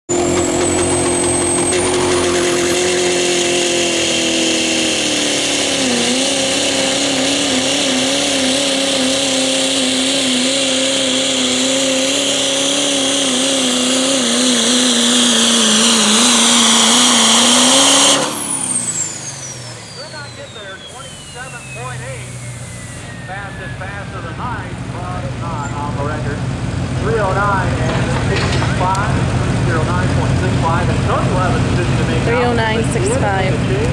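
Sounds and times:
diesel truck engine at full throttle: 0.0s - 33.9s
turbo whistle: 0.1s - 4.9s, 15.3s - 24.1s.

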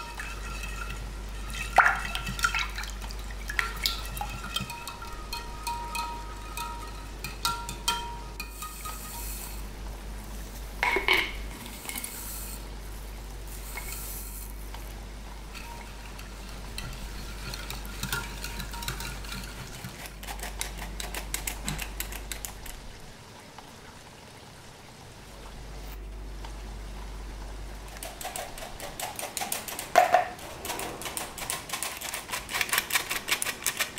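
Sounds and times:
whisk clicking against glass: 3.6s - 9.3s.

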